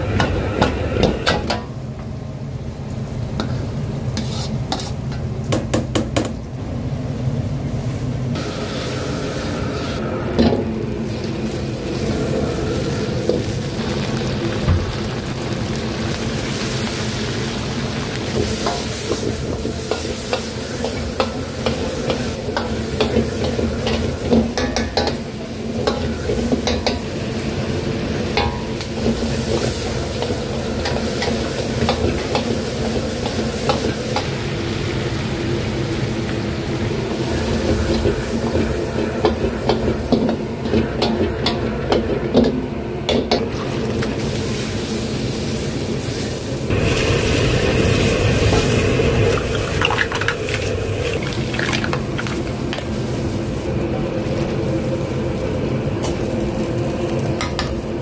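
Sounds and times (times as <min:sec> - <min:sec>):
food sizzling in a wok: 0:00.0 - 0:05.5, 0:07.6 - 0:58.0
metal utensil scraping a pan: 0:04.2 - 0:05.1.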